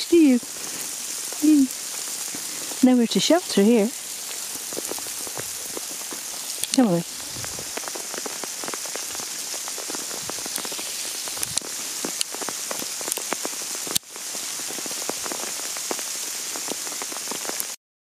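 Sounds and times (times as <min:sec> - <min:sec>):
hailstones ticking: 0:00.0 - 0:17.8
steady hiss: 0:00.0 - 0:17.8.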